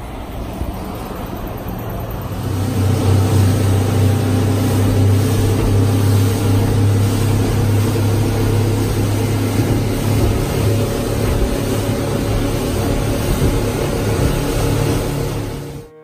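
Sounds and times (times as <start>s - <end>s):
wind and water rushing: 0.0s - 15.9s
outboard motor droning: 0.0s - 16.0s.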